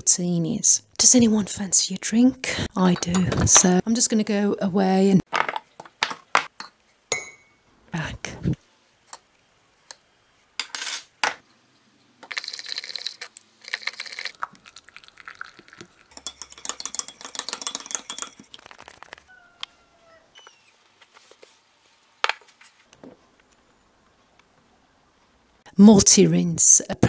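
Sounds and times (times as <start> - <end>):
teaspoon clinking in ceramic mug: 13.7 - 18.6.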